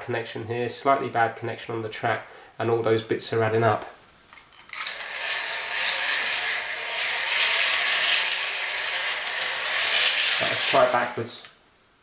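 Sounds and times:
model train motor whirring: 4.7 - 11.2.

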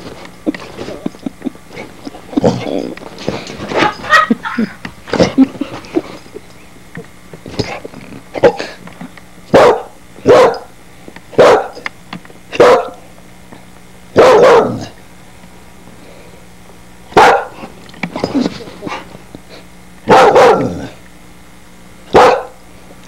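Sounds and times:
puppy barking: 9.5 - 10.7, 11.4 - 11.8, 12.5 - 13.0, 14.2 - 14.9, 17.2 - 17.6, 20.1 - 20.9, 22.1 - 22.6.

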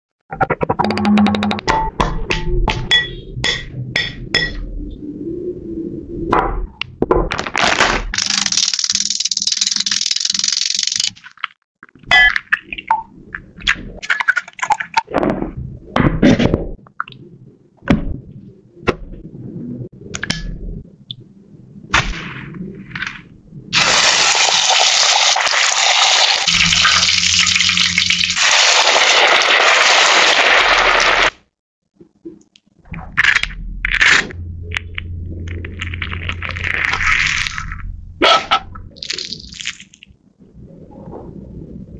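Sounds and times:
oil sizzling loudly: 23.8 - 31.3.

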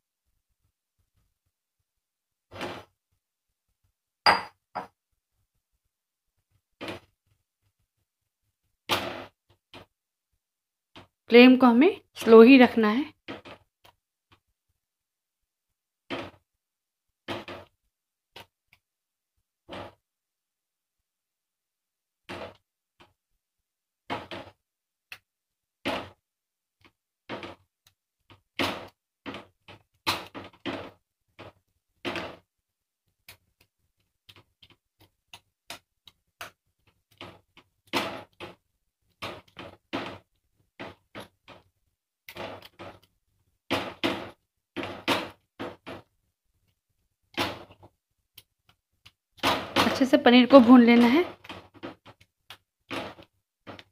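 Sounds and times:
spatula knocking and scraping pan: 37.1 - 46.2, 49.4 - 53.9.

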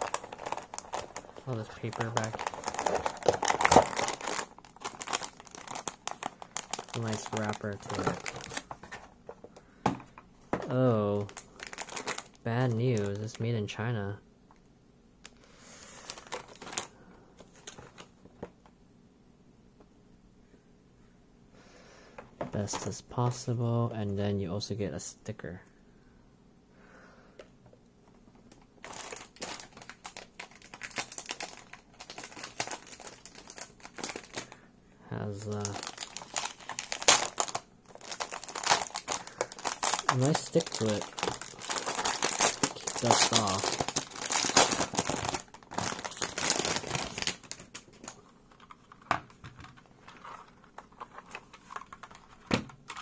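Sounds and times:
packaging crinkling: 0.0 - 9.1, 11.1 - 13.4, 15.8 - 18.4, 28.5 - 34.6, 35.2 - 53.0.

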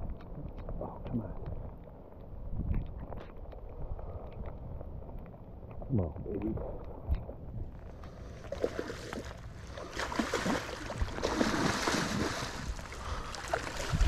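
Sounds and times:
fish thrashing and splashing: 8.4 - 14.0.

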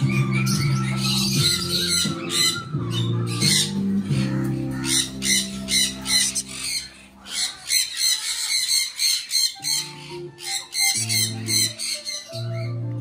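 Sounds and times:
music with held low notes: 0.0 - 7.8, 9.0 - 13.0
parrots squawking: 0.0 - 12.9.

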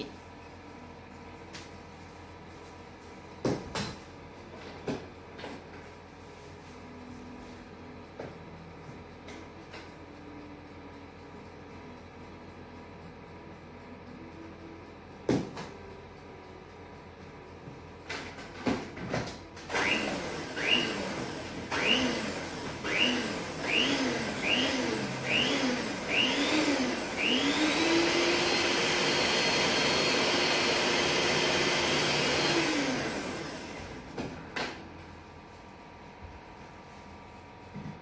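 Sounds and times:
electric hand mixer beating batter: 19.7 - 34.0.

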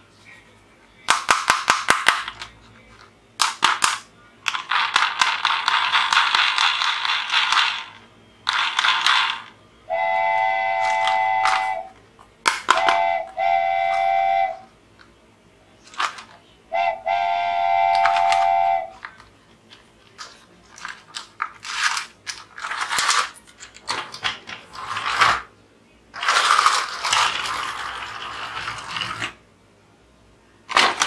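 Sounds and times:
rapid toy clicks: 4.5 - 9.5
steam train whistle: 9.9 - 11.9, 12.8 - 14.7, 16.7 - 19.0.

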